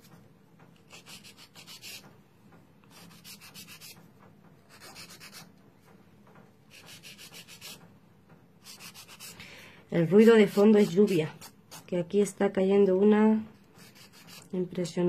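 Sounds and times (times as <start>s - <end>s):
nail file rasping: 0.9s - 2.1s, 2.9s - 4.0s, 4.7s - 5.5s, 6.7s - 7.8s, 8.6s - 9.4s, 10.1s - 11.9s, 13.7s - 14.5s.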